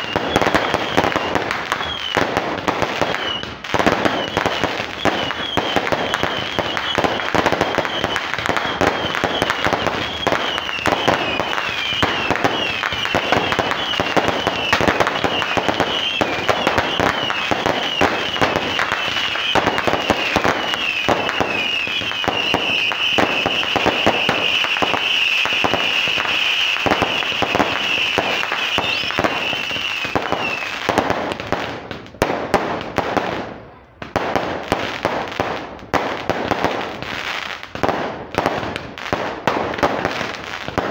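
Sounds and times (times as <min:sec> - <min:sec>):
high warbling firework whistle: 0:00.0 - 0:31.5
fireworks popping and banging: 0:00.0 - 0:40.9.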